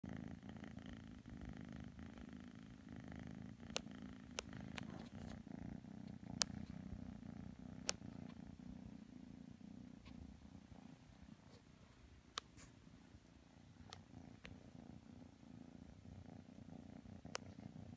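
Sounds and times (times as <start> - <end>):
kitten purring: 0.0 - 17.9.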